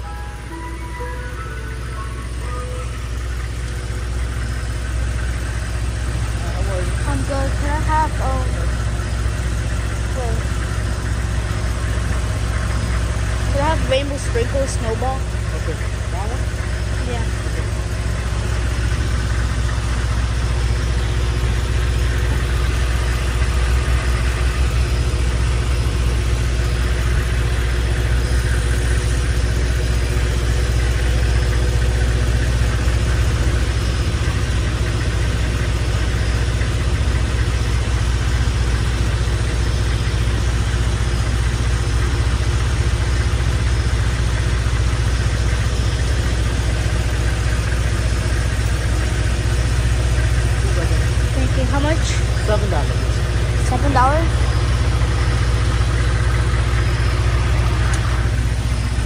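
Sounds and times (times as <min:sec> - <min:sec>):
truck engine idling: 0:00.0 - 0:59.0.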